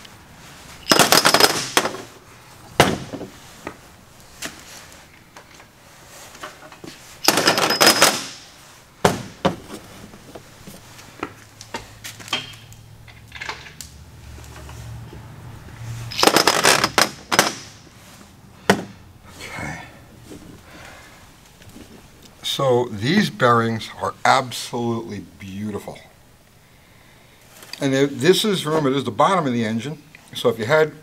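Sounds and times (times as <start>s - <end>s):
metal caps clattering on steel bench: 12.3s - 13.8s.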